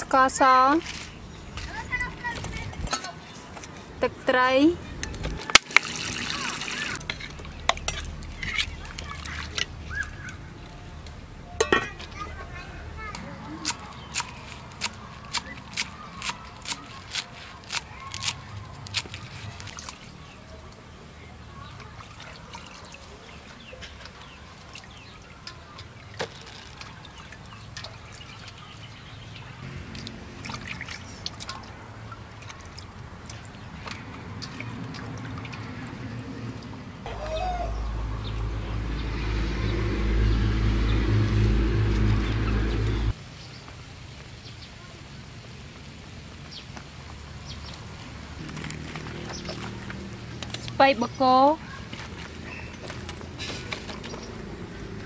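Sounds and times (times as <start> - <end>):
water splashing in metal bowl: 5.6 - 10.4, 21.6 - 36.8.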